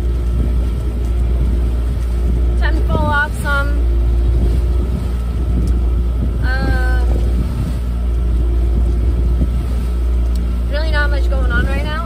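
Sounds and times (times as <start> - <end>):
boat engine droning: 0.0 - 12.0
woman's voice: 2.6 - 3.8, 6.4 - 7.2, 10.7 - 12.0.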